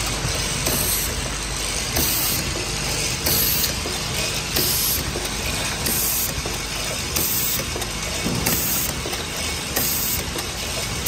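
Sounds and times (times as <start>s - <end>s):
bottle filling machine clatter: 0.0s - 11.0s
machine hiss: 1.9s - 2.6s, 3.2s - 3.7s, 8.4s - 8.9s, 9.8s - 10.3s.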